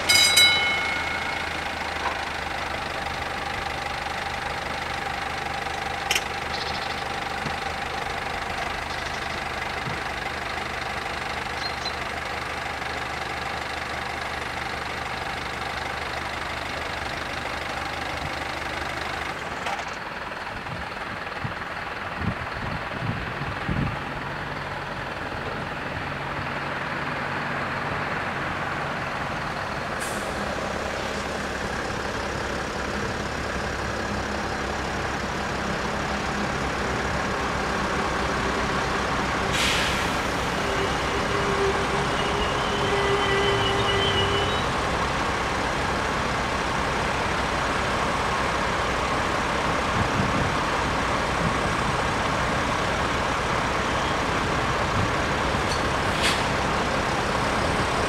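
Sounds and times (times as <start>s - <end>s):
level crossing bells ringing: 0.0s - 2.7s
steady tones: 0.0s - 3.0s
passenger train approaching: 0.0s - 58.0s.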